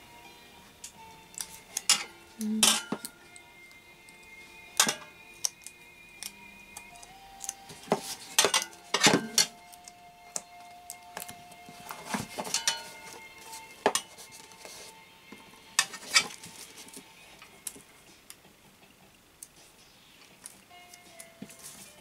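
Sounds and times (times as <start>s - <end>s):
foil crinkling and rustling: 11.7s - 14.9s.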